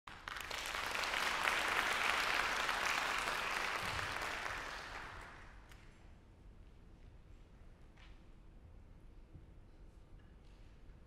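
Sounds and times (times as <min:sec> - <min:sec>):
audience applauding: 0:00.1 - 0:05.6.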